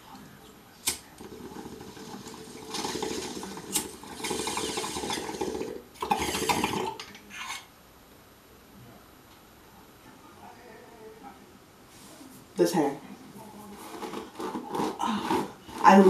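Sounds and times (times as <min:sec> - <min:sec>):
water bong bubbling: 0:00.4 - 0:07.7.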